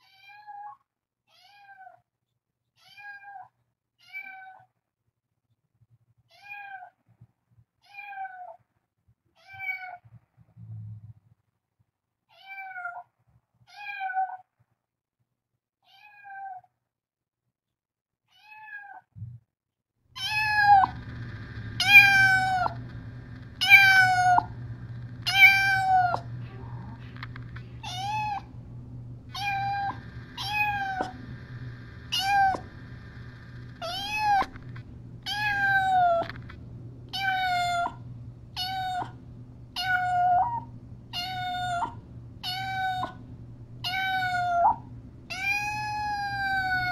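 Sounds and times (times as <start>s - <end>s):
cat meowing: 0.0s - 2.0s, 2.8s - 4.7s, 6.3s - 6.9s, 7.8s - 8.6s, 9.4s - 10.0s, 12.3s - 13.0s, 13.7s - 14.4s, 15.8s - 16.7s, 18.3s - 19.1s, 20.2s - 21.2s, 21.8s - 22.8s, 23.6s - 24.6s, 25.2s - 28.6s, 29.3s - 31.3s, 32.1s - 32.7s, 33.7s - 34.6s, 35.2s - 36.4s, 37.1s - 38.0s, 38.6s - 39.2s, 39.8s - 43.2s, 43.8s - 46.9s
low steady hum: 20.2s - 46.9s.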